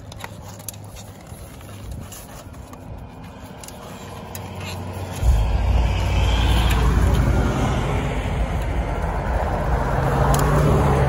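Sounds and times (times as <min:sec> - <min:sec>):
engine-driven machine rumbling: 0:03.8 - 0:11.0.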